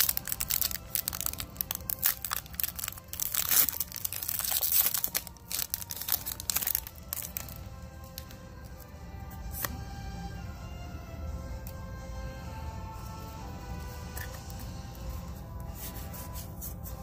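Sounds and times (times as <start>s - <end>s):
foil wrapper crinkling: 0.0s - 8.3s.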